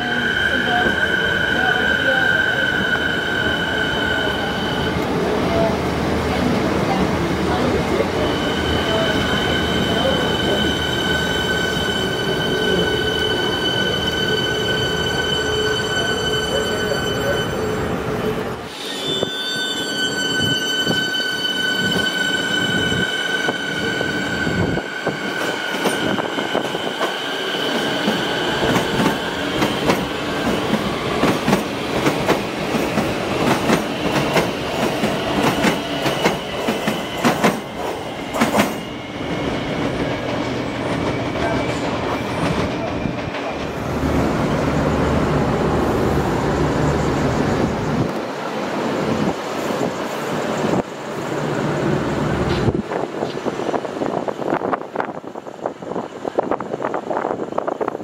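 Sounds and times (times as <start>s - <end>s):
electric train whine: 0.0s - 5.7s, 7.5s - 58.0s
wheel squeal: 18.7s - 27.8s.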